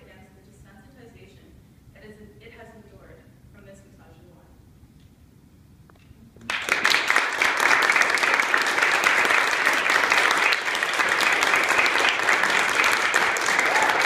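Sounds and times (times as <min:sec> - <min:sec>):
audience applauding: 0:06.5 - 0:14.0.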